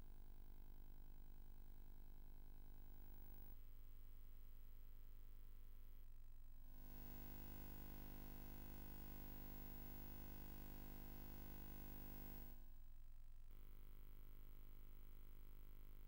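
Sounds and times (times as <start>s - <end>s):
faint steady hum: 6.7s - 12.6s.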